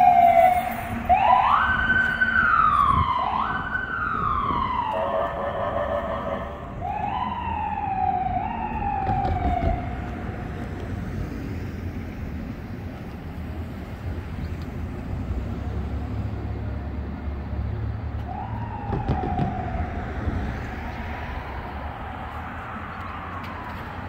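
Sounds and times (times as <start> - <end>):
ambulance siren wailing: 0.0 - 10.6, 18.1 - 24.0
street traffic rumble: 0.0 - 24.0.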